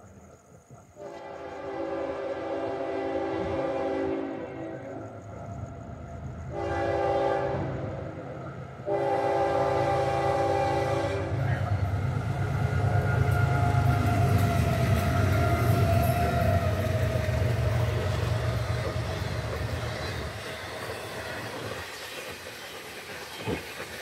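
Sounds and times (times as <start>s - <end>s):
train rolling and clattering: 0.0s - 24.0s
locomotive air horn: 1.0s - 4.9s, 6.5s - 8.2s, 8.8s - 11.5s
diesel engine rumble: 11.3s - 20.9s.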